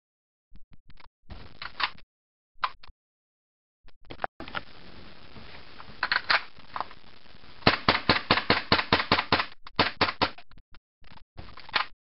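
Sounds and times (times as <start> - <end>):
airsoft pistol firing rapid shots: 7.6 - 10.4.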